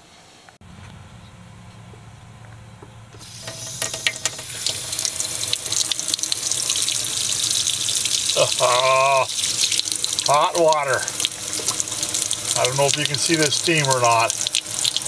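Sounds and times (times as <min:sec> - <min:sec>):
low steady hum: 0:00.6 - 0:15.0
faucet running water into sink: 0:03.2 - 0:15.0.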